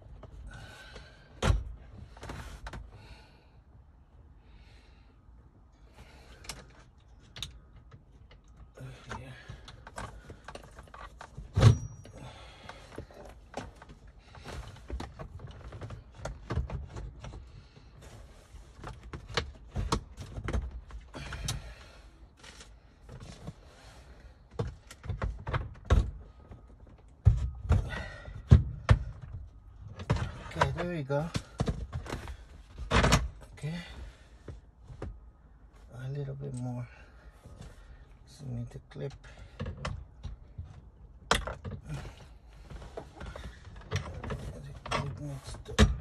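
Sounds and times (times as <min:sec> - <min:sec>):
gear shift clicks and knocks: 0:06.4 - 0:17.6, 0:18.7 - 0:21.6, 0:24.5 - 0:33.6, 0:39.2 - 0:46.0.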